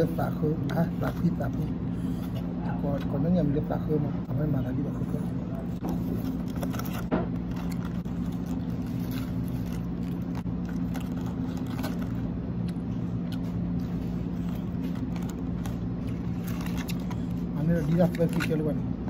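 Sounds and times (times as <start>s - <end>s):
low machine hum: 0.0s - 19.0s
lettuce leaves crackling: 6.0s - 18.8s.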